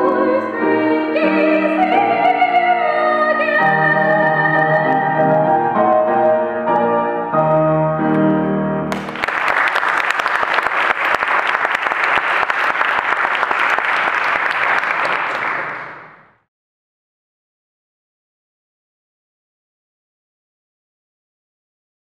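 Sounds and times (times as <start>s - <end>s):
grand piano chords: 0.0s - 9.3s
audience applauding: 8.9s - 16.4s.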